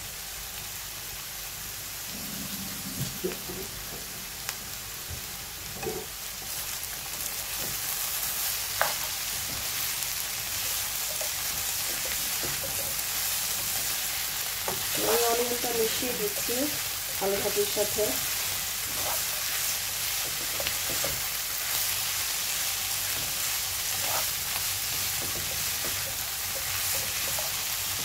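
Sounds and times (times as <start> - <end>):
vegetables sizzling in a wok: 0.0 - 28.0
spatula scraping a pan: 18.4 - 21.3, 23.0 - 28.0.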